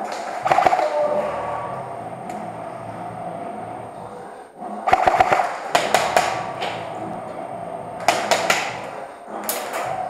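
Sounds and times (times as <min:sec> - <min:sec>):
airsoft gun shots echoing: 0:04.9 - 0:06.5.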